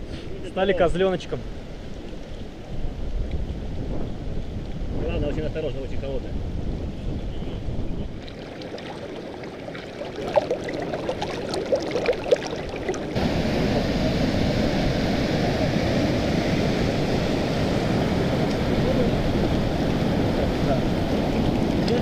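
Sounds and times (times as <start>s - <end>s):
stream water rushing: 8.1s - 22.0s.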